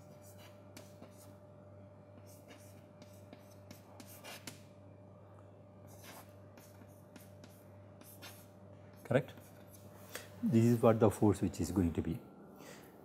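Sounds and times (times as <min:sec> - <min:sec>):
chalk scratching on chalkboard: 0:00.0 - 0:01.4, 0:02.2 - 0:04.6, 0:05.9 - 0:10.0
steady low hum: 0:00.0 - 0:13.0.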